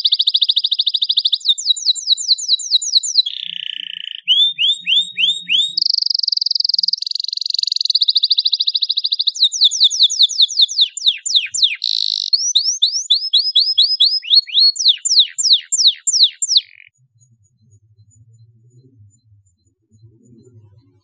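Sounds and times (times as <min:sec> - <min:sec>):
canary singing: 0:00.0 - 0:16.9.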